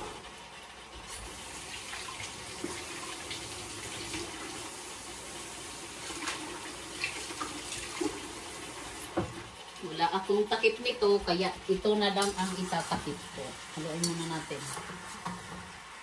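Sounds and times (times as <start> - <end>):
chicken sizzling in a wok: 1.0 - 9.2.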